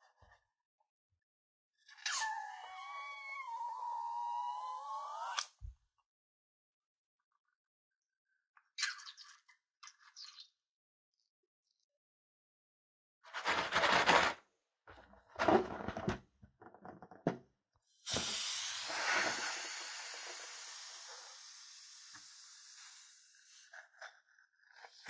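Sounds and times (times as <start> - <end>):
air hissing out of balloon: 17.9 - 23.7.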